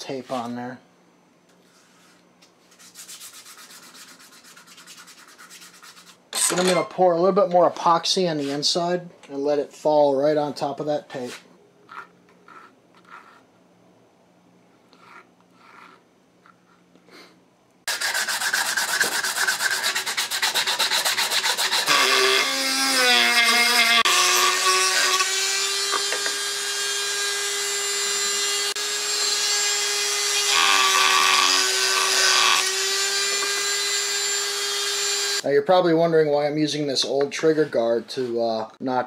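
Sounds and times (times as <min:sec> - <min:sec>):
rotary tool grinding wood: 0:11.9 - 0:13.4, 0:14.9 - 0:16.0, 0:17.9 - 0:35.4.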